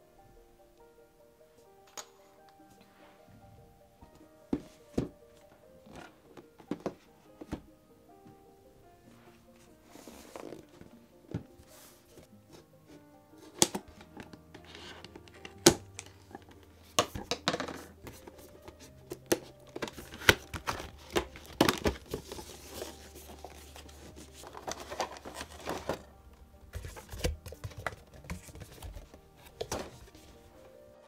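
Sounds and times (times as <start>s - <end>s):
background music: 0.0s - 31.0s
plastic tray clicks and crinkles: 19.2s - 23.6s.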